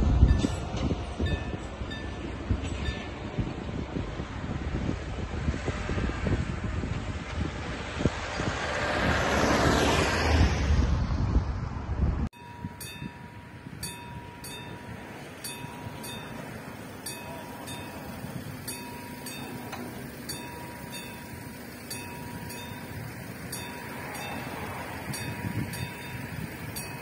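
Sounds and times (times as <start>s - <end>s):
level crossing warning bell ringing: 1.2s - 3.2s, 12.4s - 27.0s.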